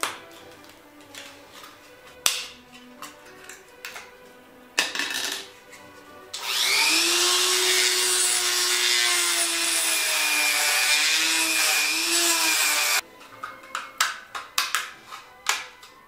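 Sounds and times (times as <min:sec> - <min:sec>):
rotary tool grinding plastic: 0:06.4 - 0:13.0.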